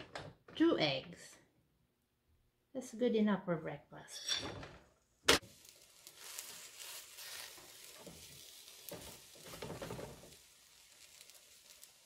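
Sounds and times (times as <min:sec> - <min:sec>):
pancake batter sizzling in pan: 0:05.4 - 0:12.0.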